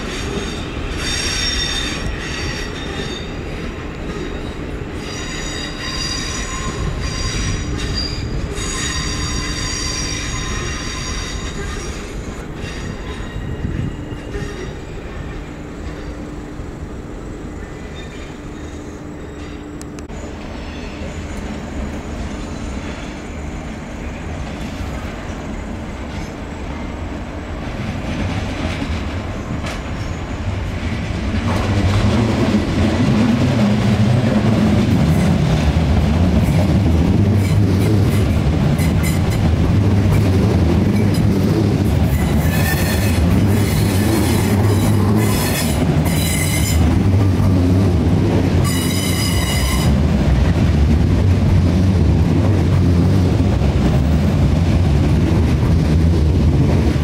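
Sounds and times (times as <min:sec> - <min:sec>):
train wheels squealing: 0:00.0 - 0:16.3, 0:17.6 - 0:25.6, 0:29.3 - 0:30.5, 0:37.4 - 0:39.5, 0:40.9 - 0:47.0, 0:48.6 - 0:50.0
electric train rumble: 0:00.0 - 0:57.0.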